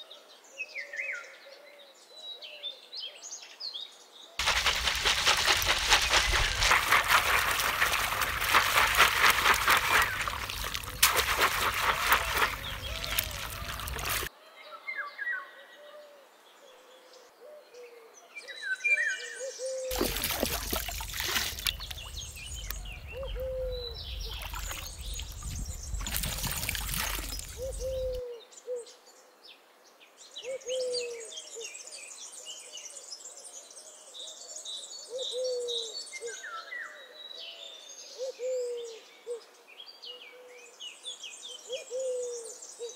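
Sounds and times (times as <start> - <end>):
water rushing and splashing: 4.4 - 14.3, 19.9 - 28.2
low bird call: 6.0 - 14.3, 21.5 - 28.3.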